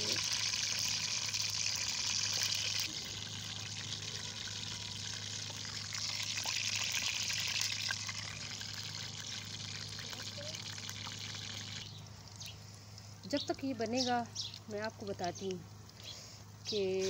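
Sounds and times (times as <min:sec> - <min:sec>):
batter frying in hot oil: 0:00.0 - 0:12.6.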